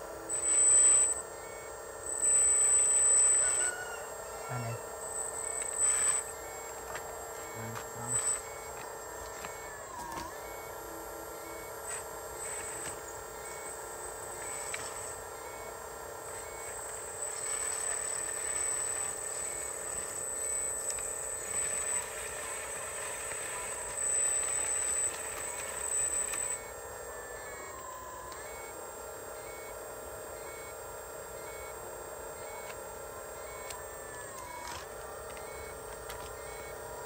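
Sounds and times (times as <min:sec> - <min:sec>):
model excavator pump whine: 0:00.0 - 0:37.0
thin high-pitched beeps: 0:00.3 - 0:10.7.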